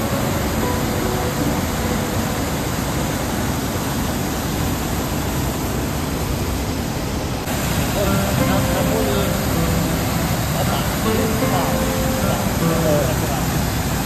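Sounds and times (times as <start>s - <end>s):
rushing water: 0.0s - 14.0s.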